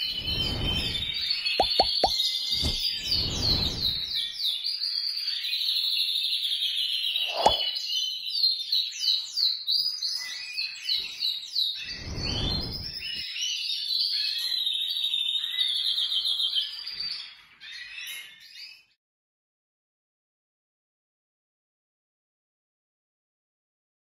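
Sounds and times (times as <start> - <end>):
canaries singing trills: 0.0 - 19.0.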